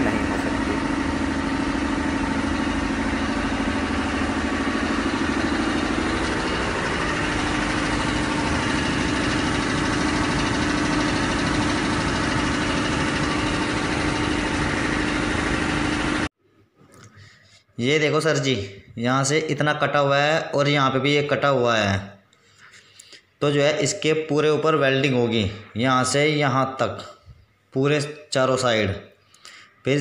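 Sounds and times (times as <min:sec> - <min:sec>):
machine humming and rumbling: 0:00.0 - 0:16.3.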